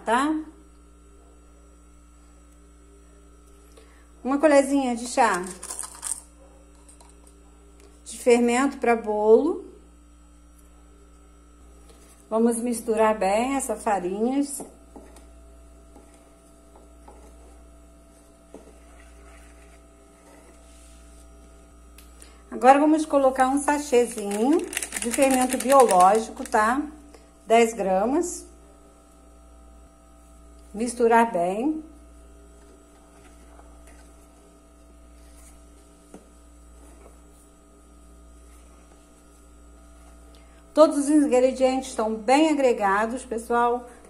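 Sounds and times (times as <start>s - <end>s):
steady electrical hum: 0.0s - 44.0s
wooden spoon stirring flour: 14.6s - 21.6s, 32.5s - 37.6s, 38.2s - 40.3s.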